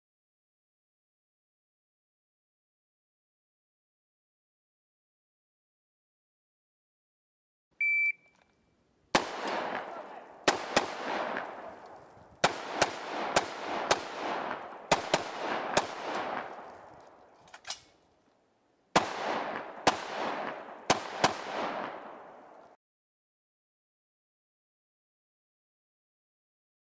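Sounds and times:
shot timer beep: 7.8 - 8.3
rifle shots with echo: 9.1 - 17.0, 18.9 - 22.6.

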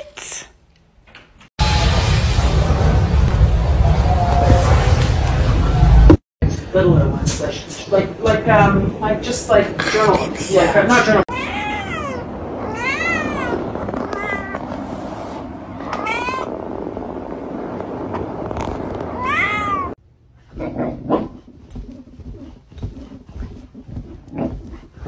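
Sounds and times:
cat meowing: 11.3 - 14.6, 15.9 - 16.5, 19.2 - 20.0.

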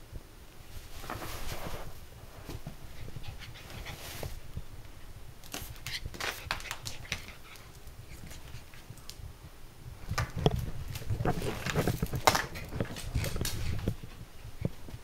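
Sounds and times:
dog panting: 2.9 - 4.3
dog claws clicking on wooden floor: 5.4 - 9.2, 10.1 - 14.0.

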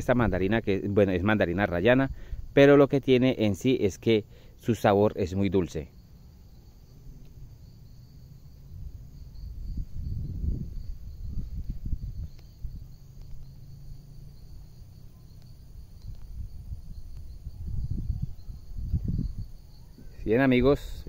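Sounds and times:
insects chirring: 0.0 - 21.0.

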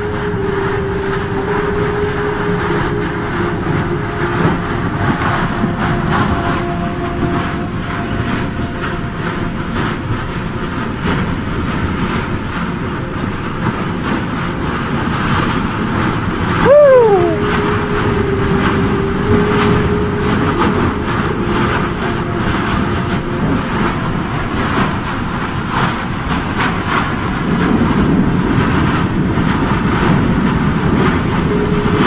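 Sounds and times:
lava fountain roaring and crackling: 8.1 - 21.4, 22.2 - 32.0
short pitched call: 16.6 - 17.6.

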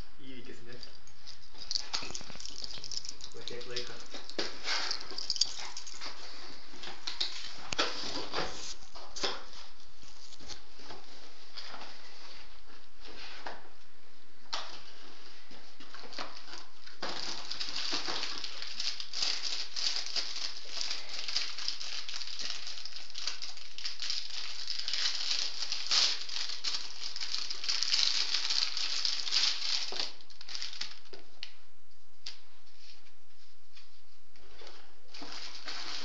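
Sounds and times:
packaging rustling and rattling: 0.7 - 6.3, 15.9 - 31.1, 35.1 - 36.0.

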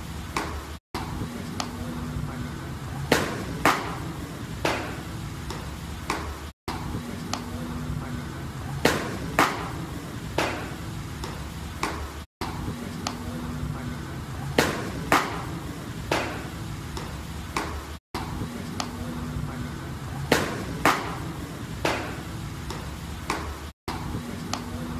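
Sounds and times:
baseball smacking into mitt: 3.1 - 6.3, 8.9 - 9.8, 10.4 - 12.0, 14.6 - 15.5, 16.1 - 17.8, 20.3 - 23.5.

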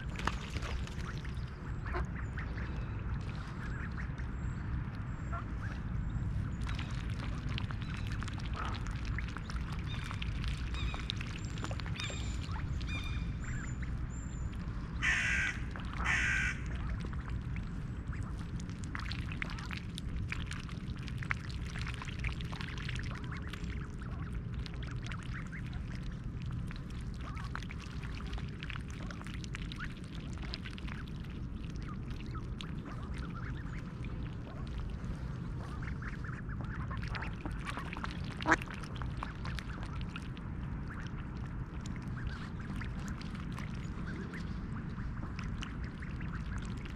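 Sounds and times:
small birds chirping: 0.0 - 15.6
low background rumble: 0.0 - 46.9
loud harsh duck calls: 15.0 - 16.6
soft duck quacks: 15.0 - 17.0.

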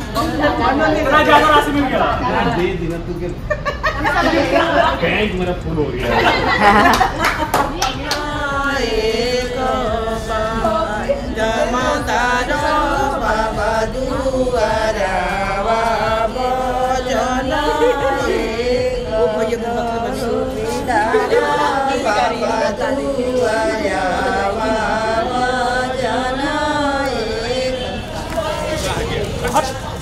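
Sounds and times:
music: 7.0 - 30.0
person singing: 8.0 - 29.4.

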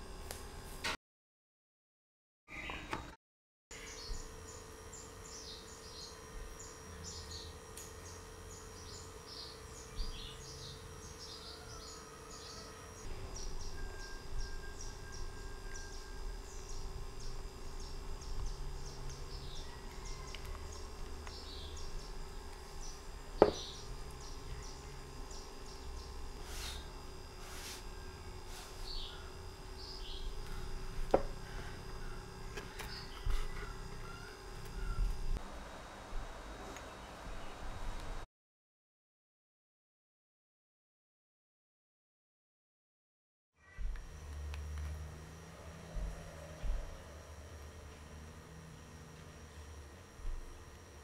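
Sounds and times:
steady low hum: 0.0 - 1.0, 3.7 - 38.3, 43.6 - 51.0
small birds chirping: 3.7 - 26.9, 28.0 - 35.2.

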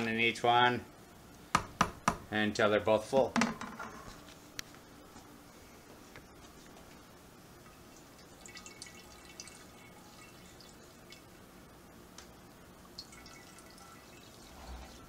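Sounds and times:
liquid trickling into glass: 7.9 - 11.3, 12.9 - 15.0.

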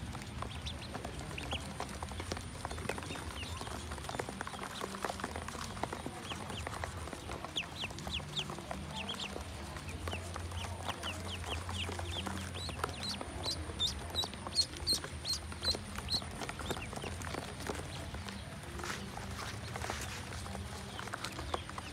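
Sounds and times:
ducklings peeping: 0.0 - 21.9.

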